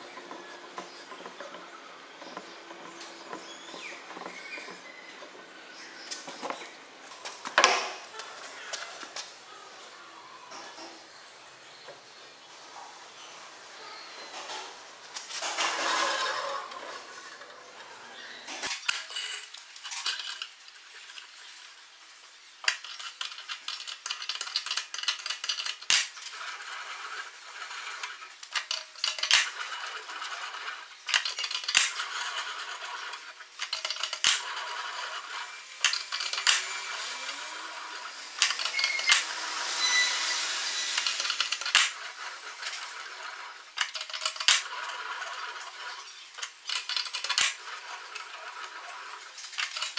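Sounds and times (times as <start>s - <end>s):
steel scraping against rollers: 0.0s - 7.4s, 14.2s - 20.4s, 24.3s - 49.9s
metal clicks and clanks: 28.0s - 32.4s, 33.1s - 34.6s, 43.8s - 44.8s, 46.4s - 48.3s, 49.4s - 49.9s.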